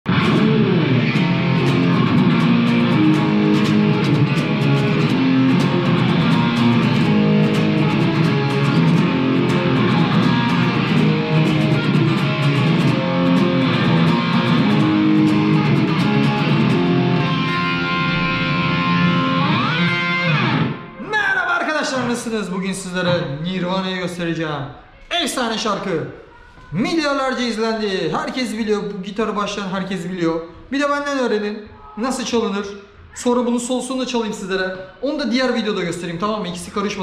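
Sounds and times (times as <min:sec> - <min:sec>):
electric guitar playing: 0:00.1 - 0:21.0.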